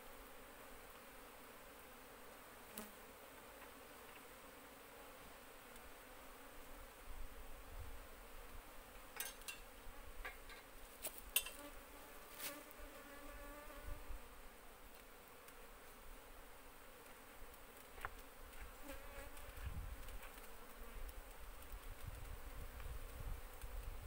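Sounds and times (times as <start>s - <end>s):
bees buzzing: 11.5s - 24.0s.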